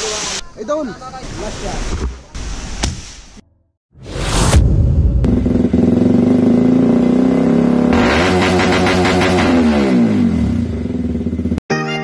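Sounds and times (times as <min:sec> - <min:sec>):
motorcycle engine revving: 0:04.0 - 0:11.6.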